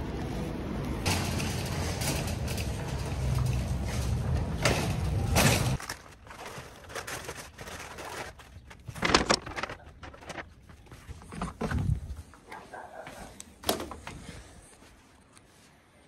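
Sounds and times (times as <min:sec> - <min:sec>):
shopping cart rolling on concrete: 0:01.0 - 0:09.0
paper bags rustling: 0:01.1 - 0:11.7.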